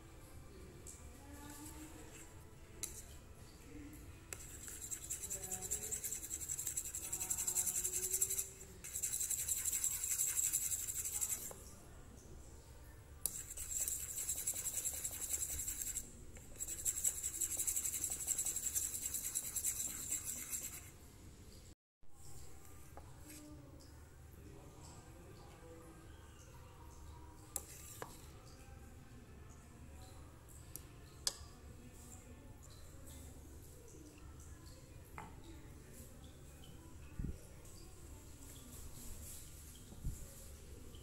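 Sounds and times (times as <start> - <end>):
fork whisking in a bowl: 4.3 - 11.7, 13.2 - 21.0, 27.5 - 28.3.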